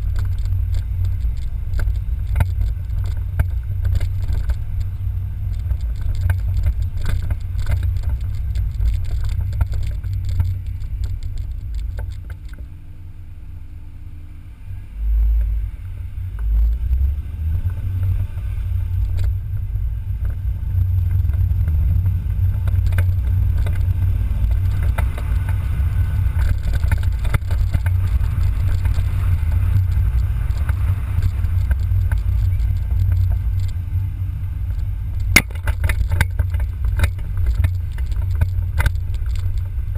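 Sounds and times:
car engine rumble: 0:00.0 - 0:39.9
road and wind noise: 0:00.0 - 0:39.9
camera mount rattles and knocks: 0:35.2 - 0:39.4.

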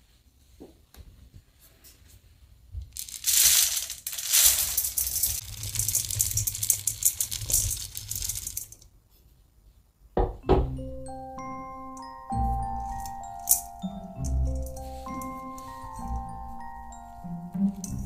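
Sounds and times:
grains pouring into metal bowl: 0:03.0 - 0:08.8.

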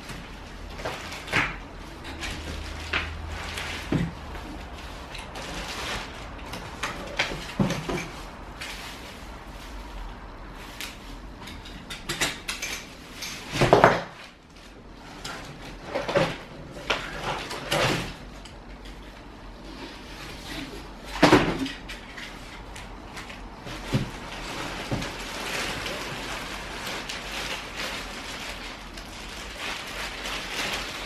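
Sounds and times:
plastic wrapping crinkling: 0:00.0 - 0:11.4, 0:21.8 - 0:31.0.

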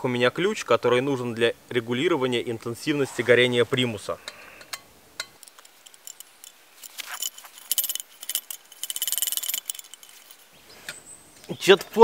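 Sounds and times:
metal clicks and clinks: 0:04.6 - 0:10.6
hand pump rasping strokes: 0:05.4 - 0:10.5.

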